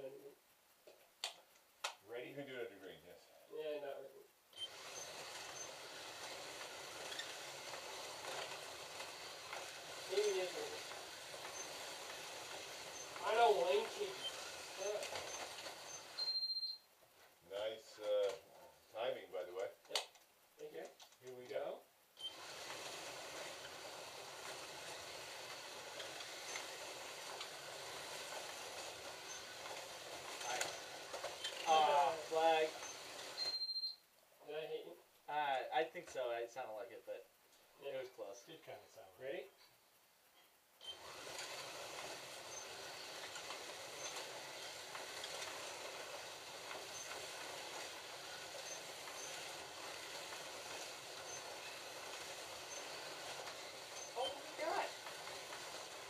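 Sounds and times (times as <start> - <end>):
slot cars whirring: 4.6 - 16.7, 22.2 - 33.7, 40.8 - 56.0
short high beeps: 15.9 - 16.8, 33.4 - 34.0.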